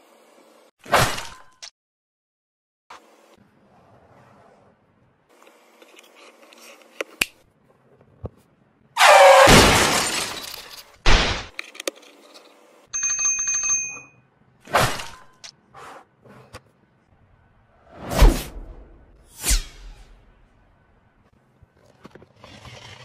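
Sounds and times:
cartoon crash shattering: 0:09.0 - 0:10.5
bell ringing: 0:13.0 - 0:14.2
quick whoosh: 0:17.9 - 0:20.3.

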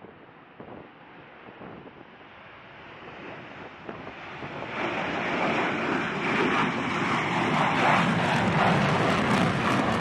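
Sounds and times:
jet engines roaring: 0:02.2 - 0:10.0.

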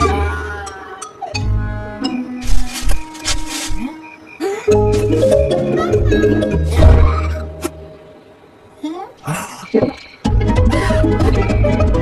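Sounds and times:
cartoon music: 0:04.7 - 0:07.5.

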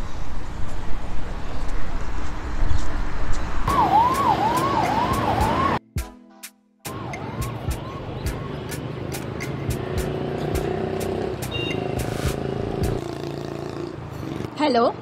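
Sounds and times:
outdoor background noise: 0:00.0 - 0:05.8, 0:06.9 - 0:15.0
siren wail: 0:03.7 - 0:05.8.

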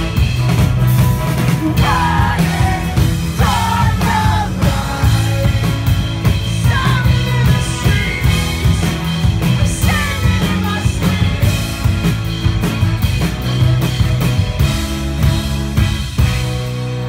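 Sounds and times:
bass and drums: 0:00.0 - 0:17.0
man singing: 0:01.6 - 0:06.0.

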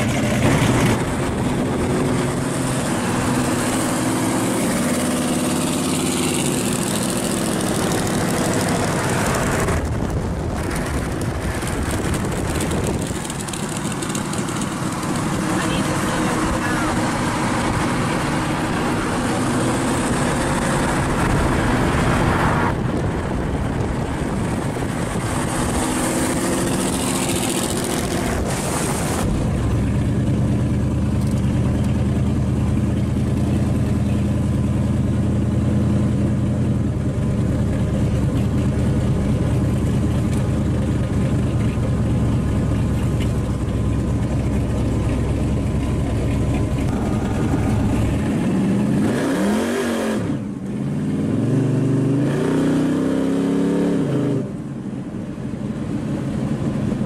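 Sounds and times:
car engine idling: 0:00.0 - 0:49.2
car engine running on the road: 0:00.0 - 0:57.0
road noise: 0:00.0 - 0:57.0
wind: 0:00.0 - 0:57.0.

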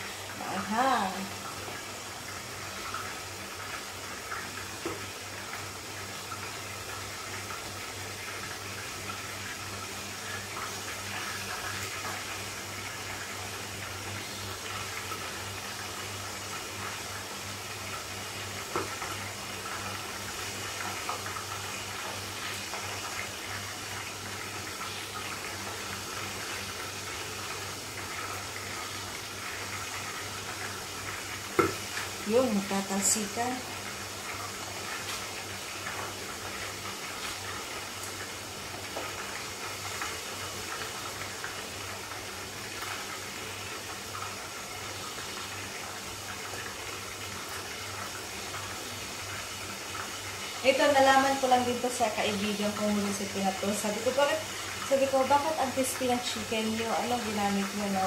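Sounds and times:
chicken sizzling in oil: 0:00.0 - 0:58.0.

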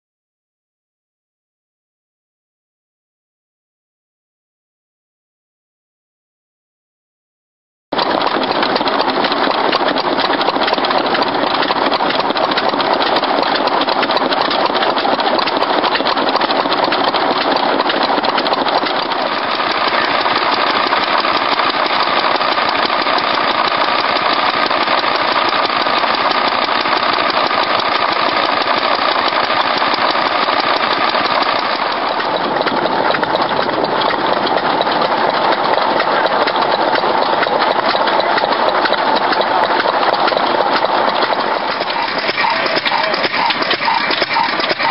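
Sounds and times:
stationary engines running: 0:08.0 - 0:44.9.

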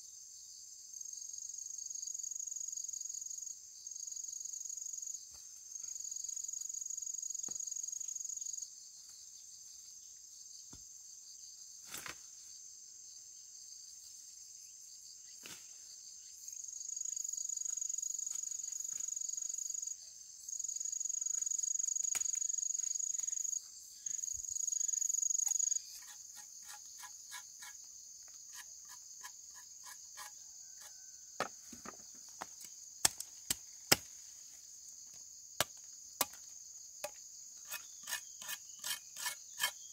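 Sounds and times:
insects chorus: 0:00.0 - 0:39.9
insect shrill: 0:24.8 - 0:27.8.

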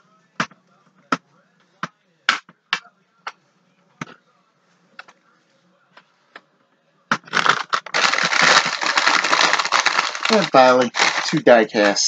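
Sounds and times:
small hard pieces clicking and knocking: 0:07.3 - 0:12.0.

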